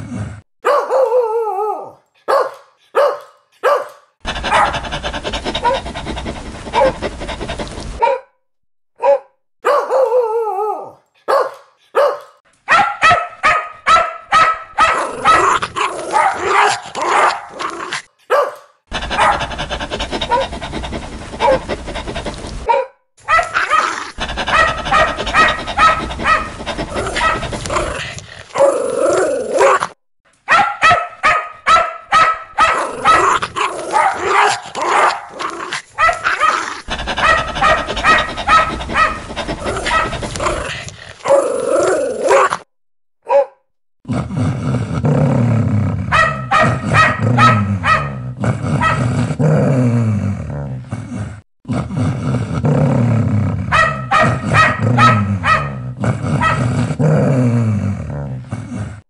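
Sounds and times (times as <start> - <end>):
dogs barking loudly: 2.2 - 8.2, 11.2 - 28.9, 30.5 - 42.7, 46.1 - 49.4, 53.6 - 57.0.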